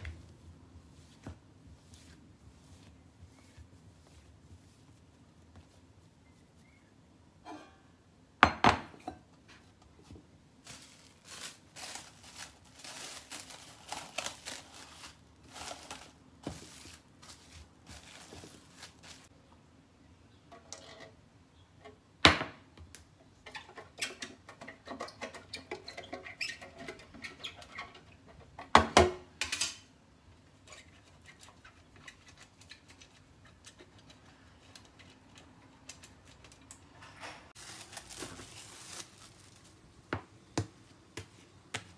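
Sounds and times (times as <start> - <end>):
rustling: 9.9 - 19.4, 37.5 - 40.1.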